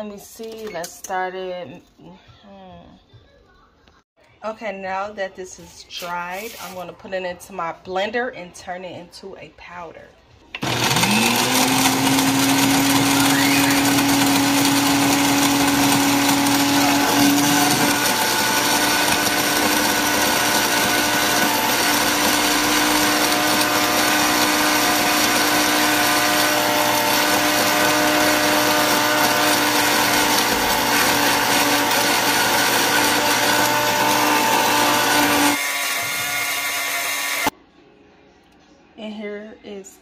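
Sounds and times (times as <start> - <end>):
blender motor grinding: 10.6 - 37.5.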